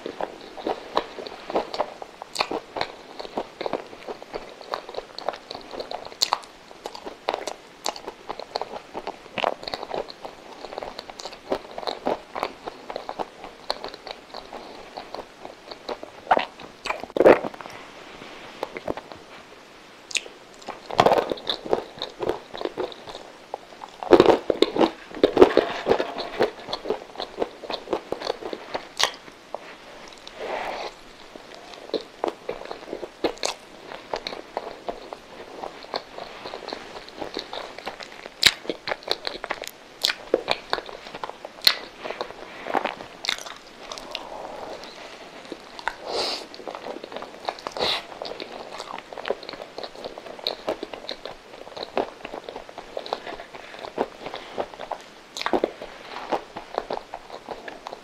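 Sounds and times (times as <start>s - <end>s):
person biting and chewing: 0.0s - 17.5s, 20.1s - 29.2s, 31.6s - 58.0s.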